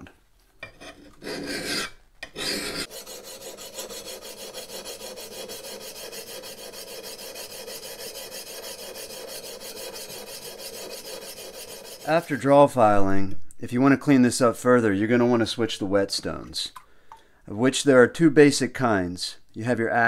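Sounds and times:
file rasping on steel: 0:00.6 - 0:12.5.

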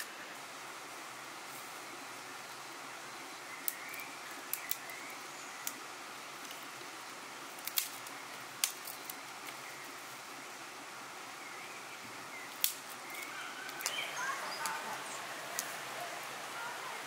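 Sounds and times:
steady soft hiss: 0:00.0 - 0:17.0
dry twigs snapping: 0:03.6 - 0:05.0, 0:05.6 - 0:05.8, 0:07.5 - 0:09.6, 0:12.5 - 0:14.0, 0:15.5 - 0:15.8.

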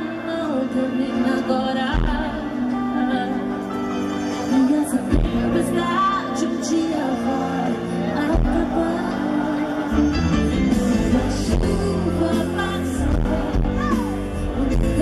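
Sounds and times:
band playing pop ballad: 0:00.0 - 0:15.0
woman singing into microphone: 0:00.0 - 0:15.0.

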